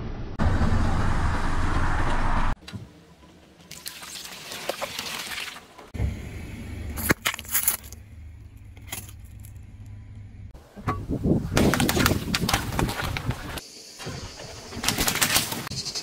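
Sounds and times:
car low rumble: 5.9s - 13.6s.

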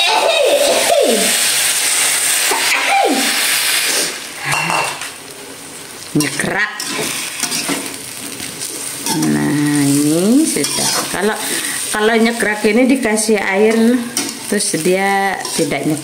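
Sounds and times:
water sizzling in hot wok: 0.0s - 16.0s
metal spatula scraping pan: 4.0s - 5.0s, 6.7s - 8.0s, 10.5s - 11.7s, 15.4s - 15.8s.

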